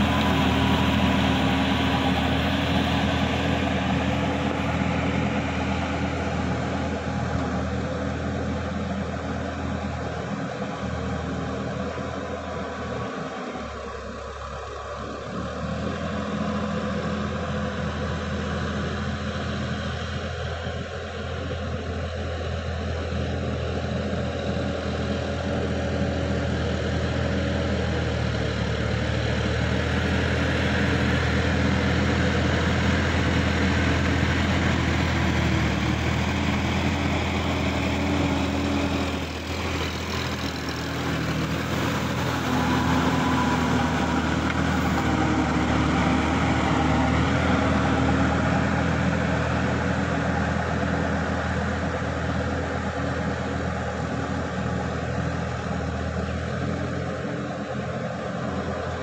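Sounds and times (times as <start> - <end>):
tractor diesel engine under load: 0.0 - 59.0
rotary tiller churning mud: 26.1 - 51.3.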